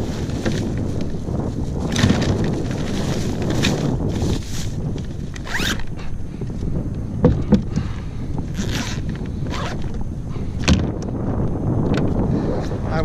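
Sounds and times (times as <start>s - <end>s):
zipper of a cooler bag: 1.8s - 6.0s, 8.5s - 10.0s.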